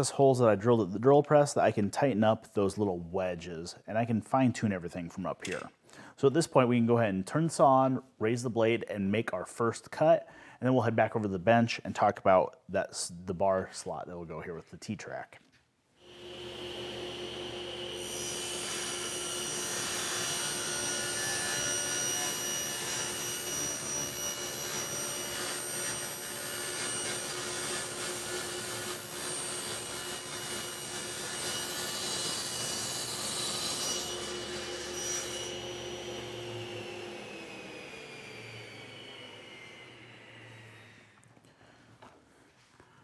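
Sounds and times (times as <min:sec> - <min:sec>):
table saw cutting wood: 0:16.0 - 0:41.2
saw winding down: 0:16.1 - 0:31.9, 0:33.0 - 0:41.2.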